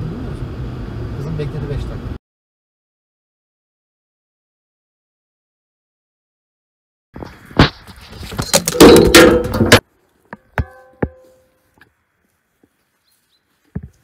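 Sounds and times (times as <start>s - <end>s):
rustling clattering knocks: 7.6s - 9.8s
sharp knocks: 8.5s - 9.8s, 10.5s - 11.2s.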